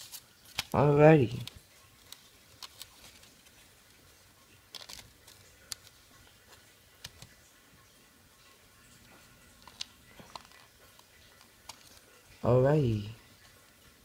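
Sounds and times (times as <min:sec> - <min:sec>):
clicks of plastic disc packaging: 0:00.0 - 0:03.6, 0:04.7 - 0:06.0.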